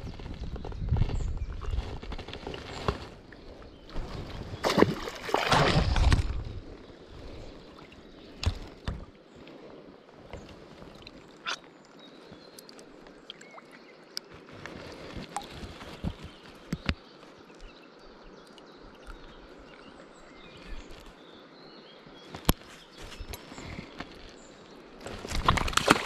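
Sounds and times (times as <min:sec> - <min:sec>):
flowing water: 0:03.2 - 0:21.2
water splashing: 0:04.0 - 0:06.6, 0:25.1 - 0:26.0
handling noise with clicks: 0:22.3 - 0:24.4.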